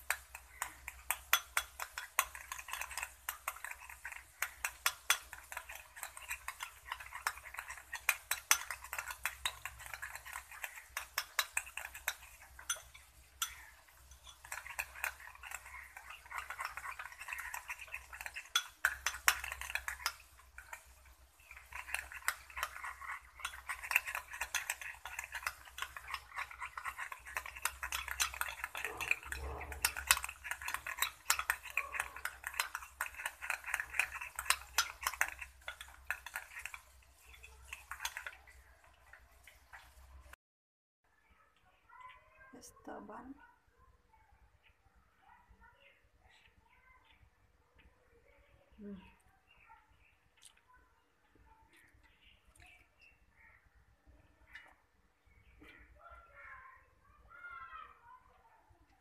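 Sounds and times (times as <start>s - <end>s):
metal spoon beating in glass bowl: 0.0s - 40.4s.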